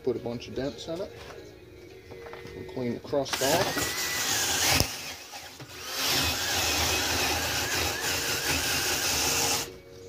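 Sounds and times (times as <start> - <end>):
drill wire brush scouring metal: 3.3 - 9.7.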